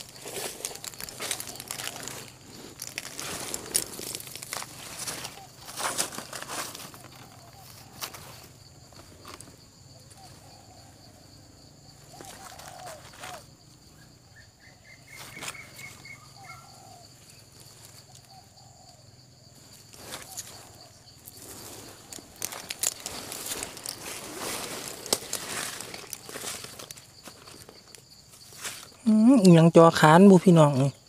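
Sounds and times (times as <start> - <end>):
footsteps in leaf litter: 0.0 - 8.3, 19.9 - 29.0
high-pitched insect drone: 0.0 - 31.0.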